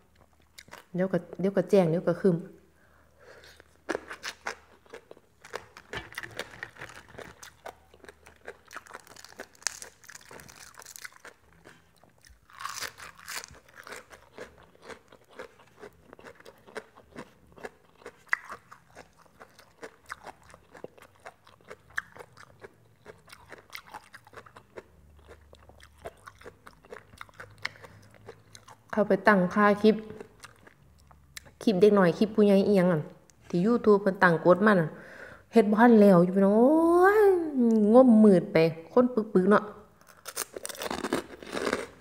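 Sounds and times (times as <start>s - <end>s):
person crunching crisp food: 3.3s - 28.9s, 40.0s - 42.0s.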